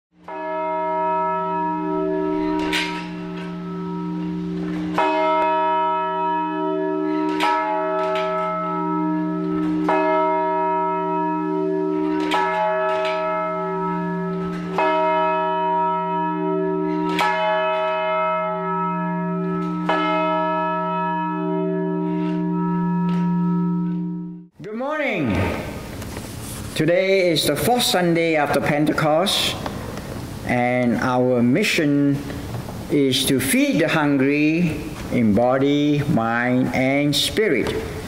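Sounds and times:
church bell tolling: 0.2s - 25.9s.

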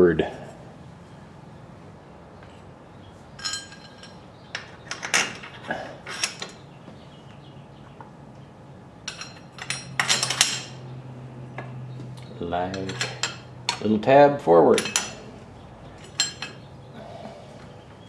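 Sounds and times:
low steady hum: 0.0s - 18.0s
metal parts clinking: 3.4s - 6.6s, 9.0s - 10.8s, 12.7s - 13.9s, 14.7s - 15.3s, 16.0s - 16.6s.

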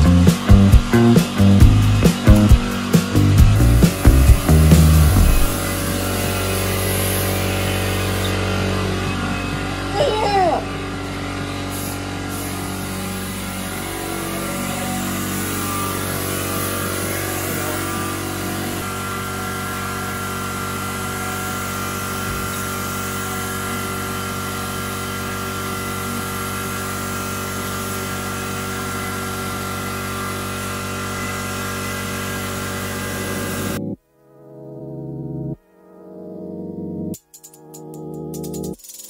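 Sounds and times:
mechanical drone: 0.0s - 34.0s
spray gun hissing: 1.2s - 8.4s, 11.6s - 25.0s.

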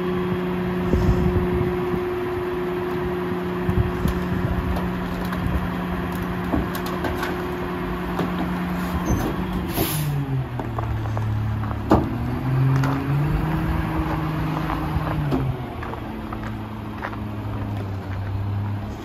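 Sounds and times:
garbage truck diesel engine running: 0.0s - 19.0s
cart banging against hopper: 4.0s - 10.8s, 11.6s - 13.2s.

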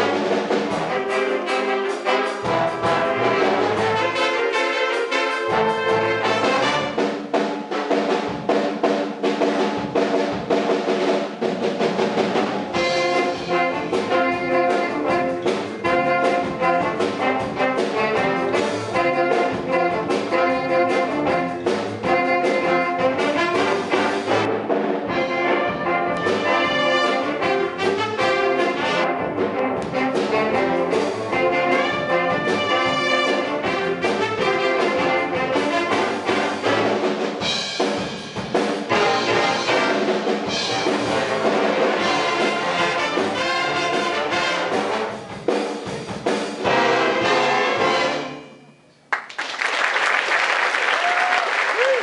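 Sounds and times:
big band playing swing: 0.0s - 52.0s
audience applause: 49.1s - 52.0s.

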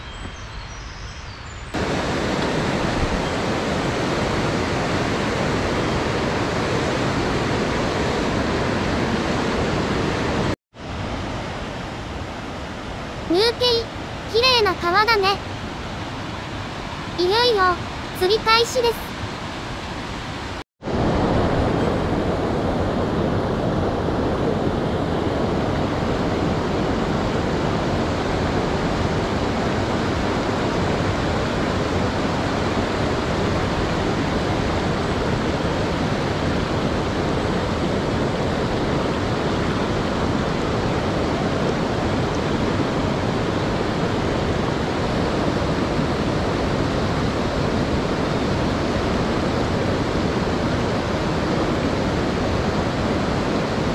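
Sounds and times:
stream rapids rushing: 1.8s - 21.7s.

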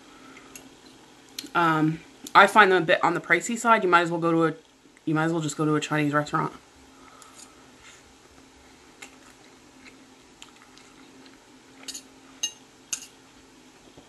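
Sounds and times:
chewing noodles: 8.3s - 11.9s
fork clinking on plate: 11.8s - 13.2s.

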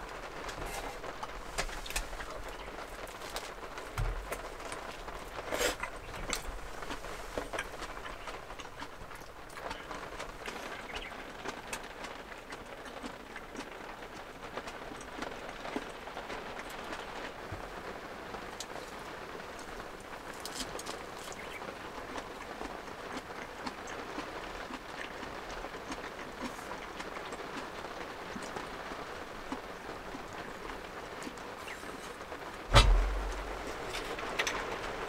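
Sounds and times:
raindrops ticking on a shell: 0.0s - 35.0s
heavy rain hissing: 27.8s - 35.0s.

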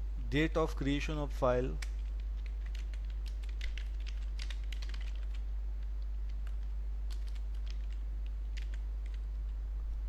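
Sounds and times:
steady low hum: 0.0s - 10.0s
keyboard keys clicking: 1.8s - 5.4s, 6.3s - 9.5s.

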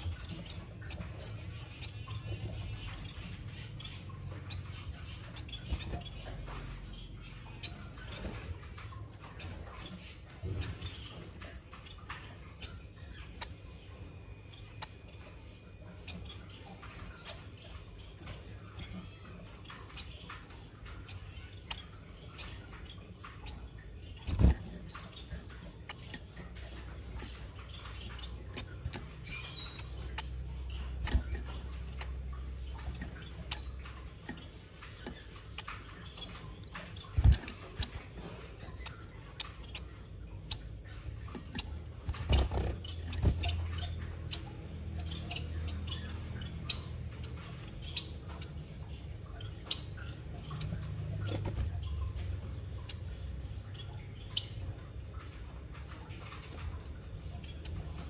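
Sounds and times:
finches chirping: 0.0s - 58.0s.

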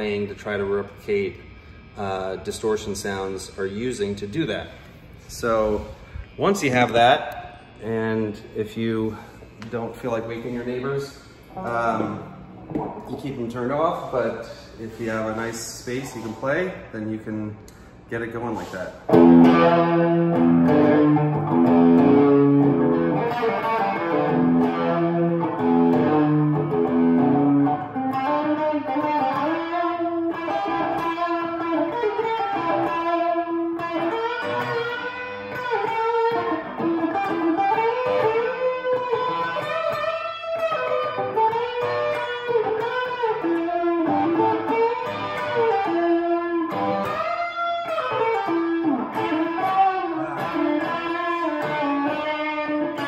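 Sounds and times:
overdriven electric guitar: 19.0s - 53.0s.

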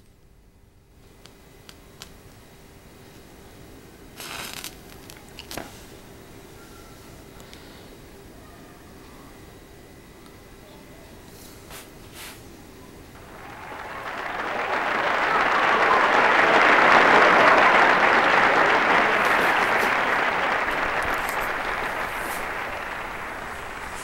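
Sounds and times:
applause: 13.2s - 24.0s.

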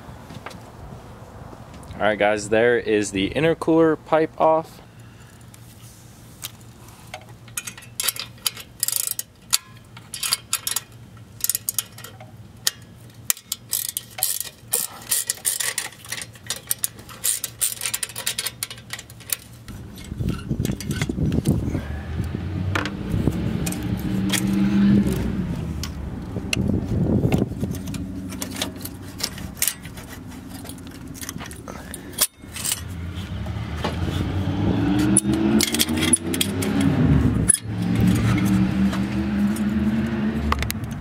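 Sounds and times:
low vehicle engine: 0.0s - 41.0s
metallic clicks of hand tool: 35.0s - 38.6s.

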